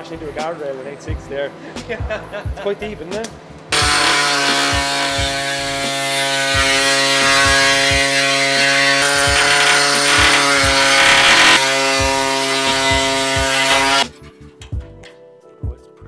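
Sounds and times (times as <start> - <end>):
air saw cutting steel: 3.7 - 14.0.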